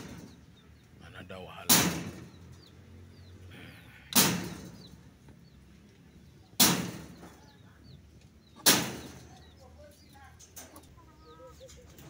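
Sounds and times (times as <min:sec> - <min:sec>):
sharp loud knocks: 0:01.7 - 0:02.5, 0:04.1 - 0:05.0, 0:06.6 - 0:07.4, 0:08.6 - 0:09.3.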